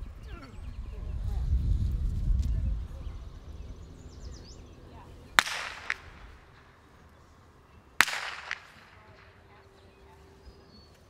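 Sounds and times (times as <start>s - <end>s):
faint snap: 5.4s - 6.3s, 8.0s - 9.3s
whip cracking: 5.4s - 6.8s, 8.0s - 9.4s.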